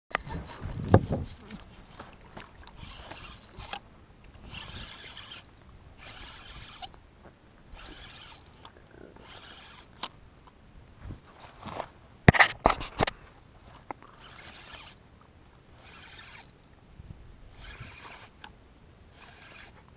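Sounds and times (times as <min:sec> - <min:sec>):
spinning reel buzzing: 0:00.1 - 0:02.0, 0:02.6 - 0:07.0, 0:07.7 - 0:10.1, 0:14.2 - 0:15.0, 0:15.7 - 0:16.6, 0:17.5 - 0:18.5, 0:19.1 - 0:19.8.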